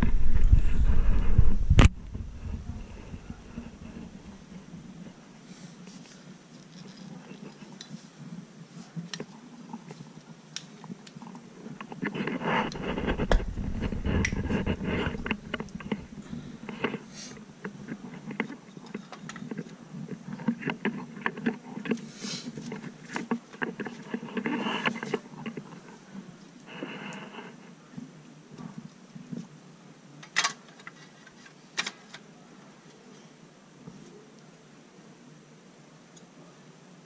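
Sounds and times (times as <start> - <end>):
low rumble: 0.0 - 4.5.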